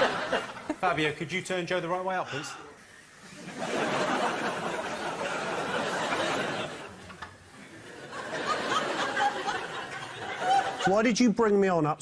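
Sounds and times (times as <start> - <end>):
studio audience laughing: 0.0 - 1.2, 3.1 - 11.1.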